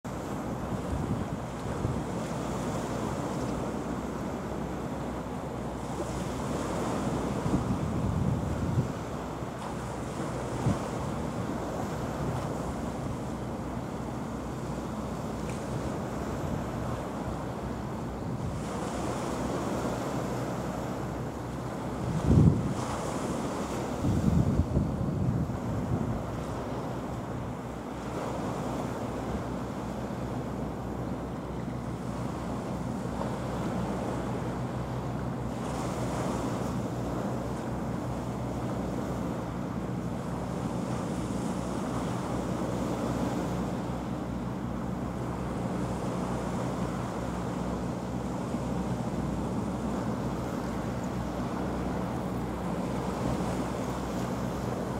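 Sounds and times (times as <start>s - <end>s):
low boat engine drone: 0.0s - 54.9s
small waves washing on shore: 0.1s - 54.9s
wind buffeting microphone: 0.2s - 3.9s, 6.0s - 13.3s, 21.6s - 27.5s.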